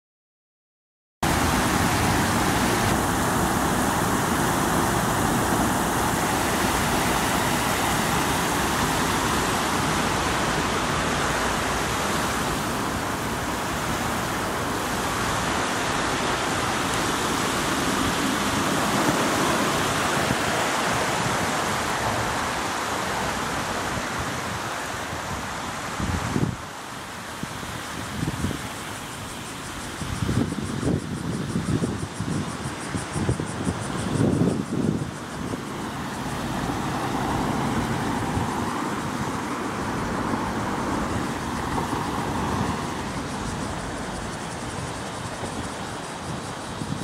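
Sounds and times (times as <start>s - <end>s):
steady outdoor rushing noise: 1.2s - 47.0s.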